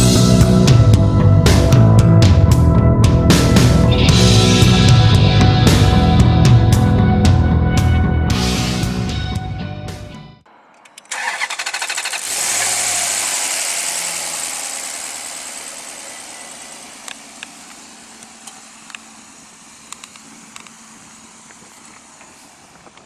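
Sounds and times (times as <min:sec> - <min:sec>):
car engine idling: 0:02.2 - 0:08.2, 0:10.6 - 0:23.0
starter motor cranking: 0:10.9 - 0:23.0.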